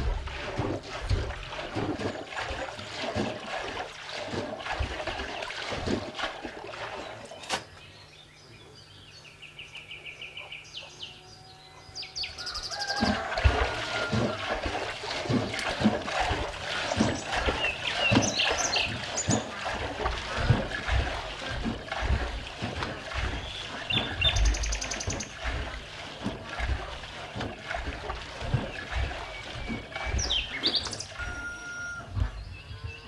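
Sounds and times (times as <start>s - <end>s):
low rumbling: 0.0s - 3.7s, 13.2s - 33.0s
birds chirping: 6.7s - 33.0s.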